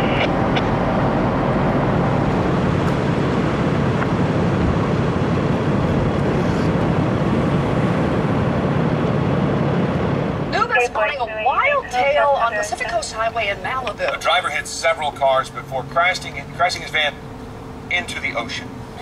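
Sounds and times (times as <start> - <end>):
vehicle engines idling: 0.0 - 19.0.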